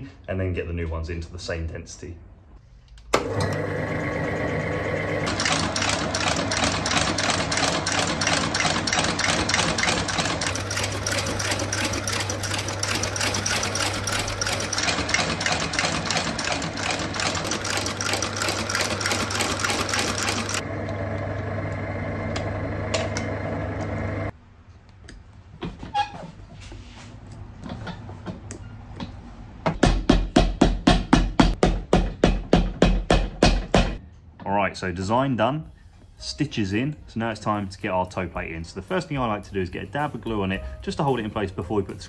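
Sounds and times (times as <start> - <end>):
electric motor humming: 3.2 - 24.3
rapid stitching strokes: 5.3 - 20.6.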